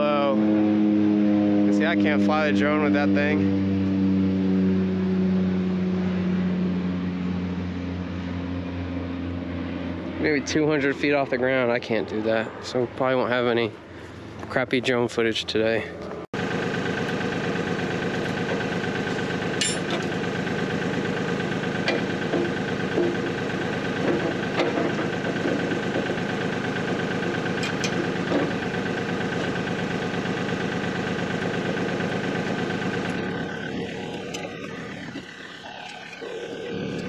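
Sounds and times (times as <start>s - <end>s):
diesel tractor engine idling: 16.4s - 37.0s.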